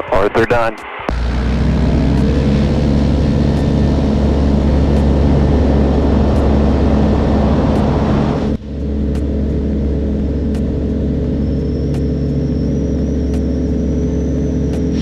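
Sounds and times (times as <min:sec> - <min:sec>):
aircraft engine and propeller drone: 0:00.0 - 0:15.0.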